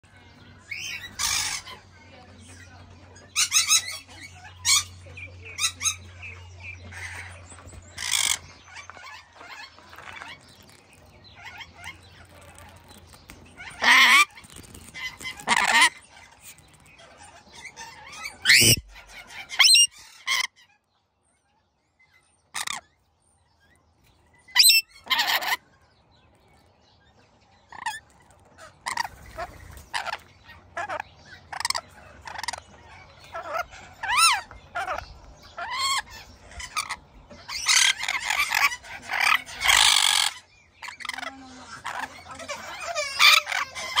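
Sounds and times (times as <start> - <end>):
lorikeet squawking and chattering: 0.6 - 1.9, 3.2 - 20.8, 22.4 - 23.0, 24.5 - 25.6, 27.7 - 44.0.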